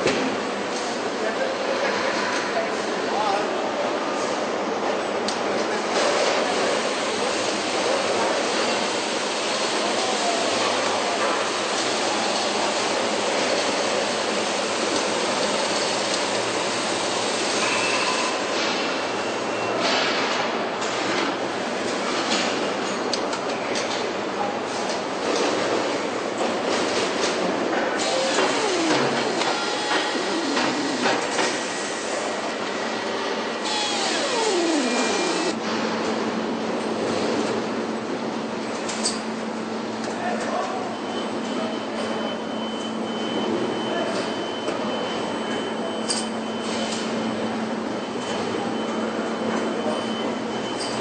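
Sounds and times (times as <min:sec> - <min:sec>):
factory floor mechanical din: 0:24.9 - 0:39.2
machinery whirring: 0:27.9 - 0:35.6
machine whine winding down: 0:28.0 - 0:35.6
faint high whine: 0:33.6 - 0:35.6.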